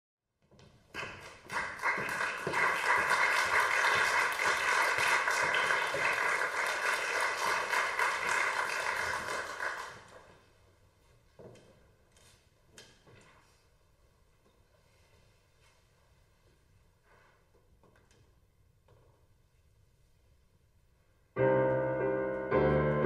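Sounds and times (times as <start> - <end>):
audience applauding: 1.0 - 10.3.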